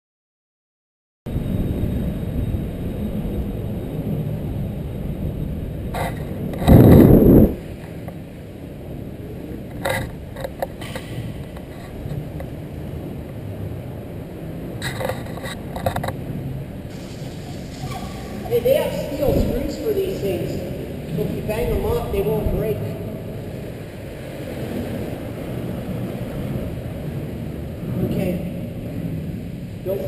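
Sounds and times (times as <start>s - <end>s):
loud low rush: 1.3s - 9.7s, 16.2s - 30.0s
skate wheels rolling on concrete: 3.0s - 30.0s.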